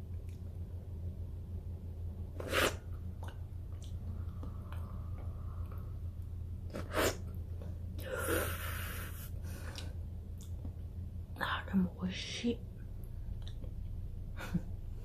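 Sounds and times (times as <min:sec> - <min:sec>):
steady low hum: 0:00.0 - 0:15.0
loud slurps: 0:02.4 - 0:02.8
wet mouth clicks: 0:02.4 - 0:04.9.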